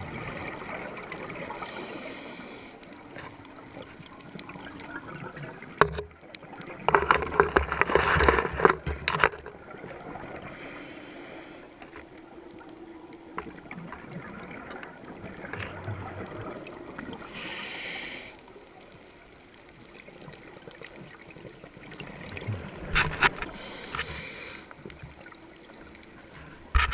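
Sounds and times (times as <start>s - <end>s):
exhaled air bubbling underwater: 0.0s - 7.5s, 8.8s - 26.8s
regulator inhale hiss: 1.6s - 3.0s, 10.5s - 11.9s, 17.2s - 18.5s, 23.5s - 24.8s.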